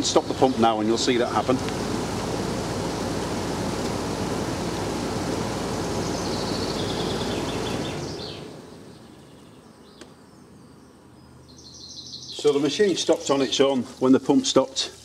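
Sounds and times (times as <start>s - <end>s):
water flowing through pump: 0.0s - 8.7s, 12.4s - 15.0s
heat pump running: 0.0s - 9.4s.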